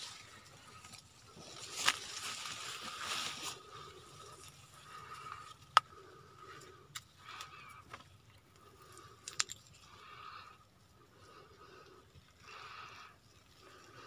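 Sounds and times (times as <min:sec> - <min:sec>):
footsteps crunching on dry leaves: 0:01.3 - 0:03.9.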